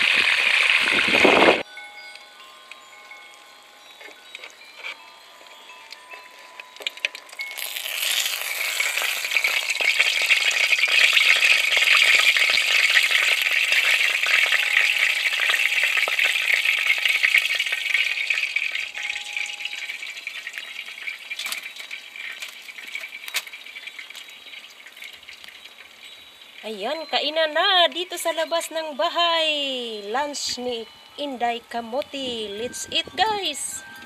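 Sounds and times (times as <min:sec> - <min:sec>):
fish frying in hot oil: 0:00.0 - 0:01.6, 0:06.3 - 0:28.4.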